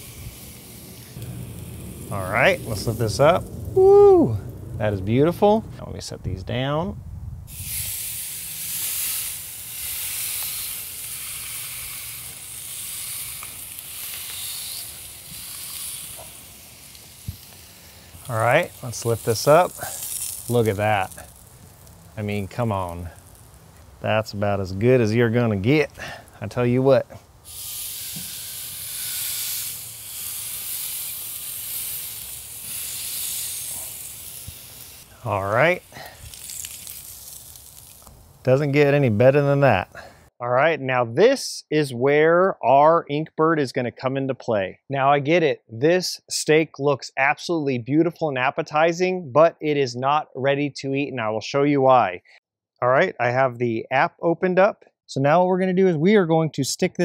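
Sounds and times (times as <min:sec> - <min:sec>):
steak sizzling on grill: 0:00.0 - 0:05.5, 0:07.5 - 0:39.6.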